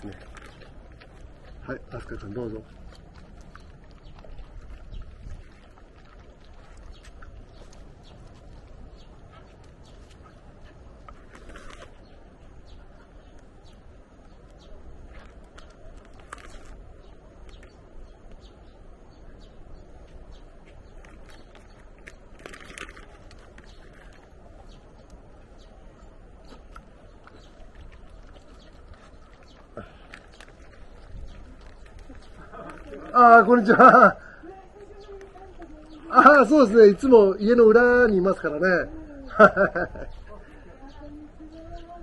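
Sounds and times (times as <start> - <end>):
dogs chewing and sniffing: 0.0 - 18.6, 20.0 - 33.8.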